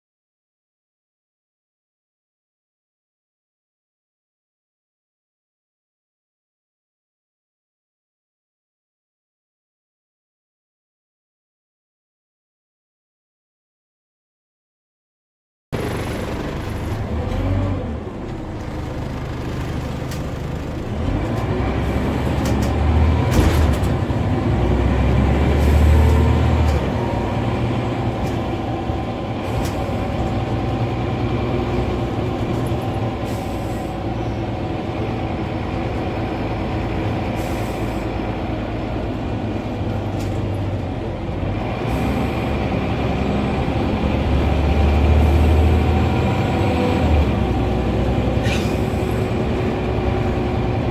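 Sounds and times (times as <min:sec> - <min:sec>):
bus diesel engine running: 0:15.8 - 0:50.9
road and body rumble: 0:15.8 - 0:50.9.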